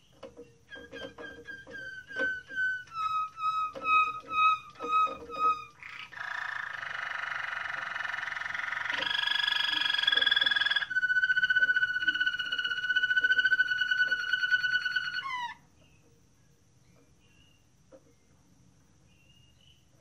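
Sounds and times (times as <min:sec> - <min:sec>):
canary singing trills: 0:00.0 - 0:18.4.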